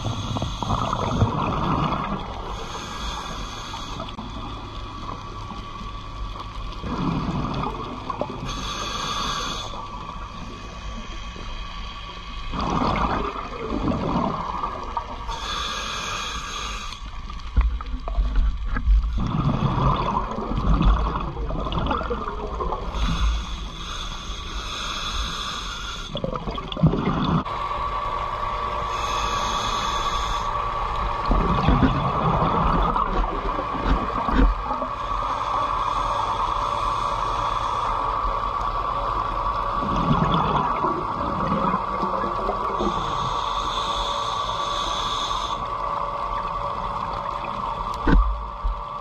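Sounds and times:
steady hum: 0:00.0 - 0:49.0
underwater rumble: 0:00.0 - 0:49.0
regulator hissing inhalations: 0:02.5 - 0:04.2, 0:08.4 - 0:11.9, 0:15.3 - 0:17.1, 0:22.9 - 0:26.2, 0:28.9 - 0:30.6, 0:35.0 - 0:38.5, 0:42.6 - 0:45.7
bubbling exhalations: 0:12.5 - 0:14.7, 0:19.2 - 0:22.7.

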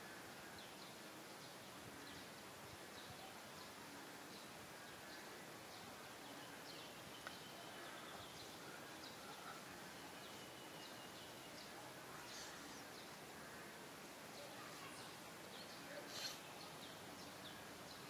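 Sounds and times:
faint steady hiss: 0:00.0 - 0:18.0
faint high chirps: 0:03.0 - 0:13.2
light tick: 0:07.2 - 0:07.4.

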